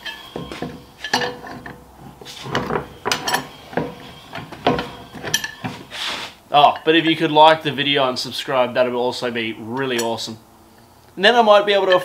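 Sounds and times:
wrench clanking on metal wheel: 0.0s - 5.9s.

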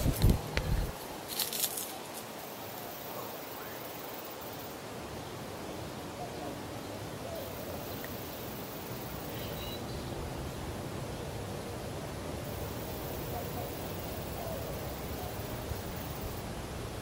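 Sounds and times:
outdoor background hiss: 0.0s - 17.0s
faint high chirp: 9.2s - 10.2s.

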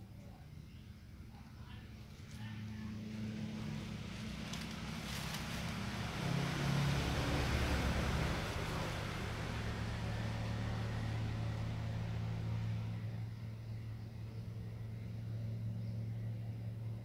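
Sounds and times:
low motor hum: 0.0s - 17.0s.

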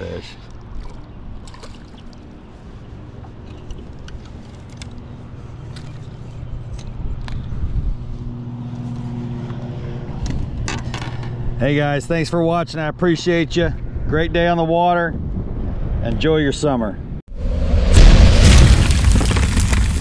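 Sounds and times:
low motor hum: 0.5s - 11.8s.

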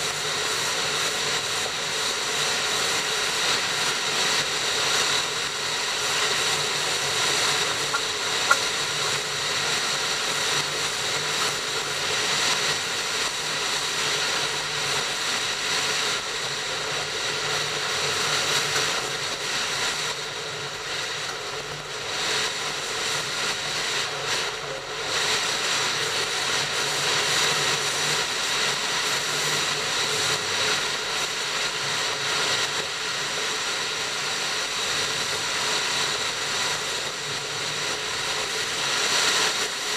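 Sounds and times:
moving train rumbling: 0.0s - 15.1s.

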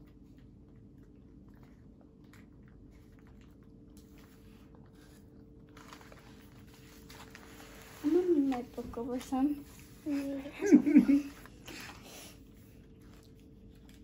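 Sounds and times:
low steady hum: 0.0s - 14.0s
wrapper crinkling and tearing: 5.6s - 8.6s.

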